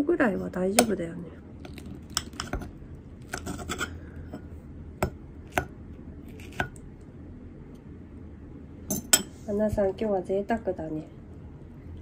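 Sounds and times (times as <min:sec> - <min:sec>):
low steady hum: 0:00.0 - 0:12.0
tableware clinking: 0:08.9 - 0:09.4.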